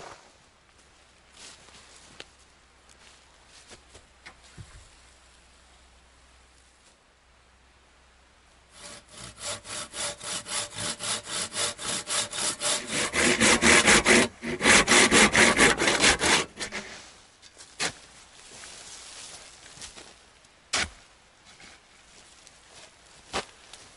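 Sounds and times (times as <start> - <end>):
hand saw cutting wood: 8.7 - 17.0.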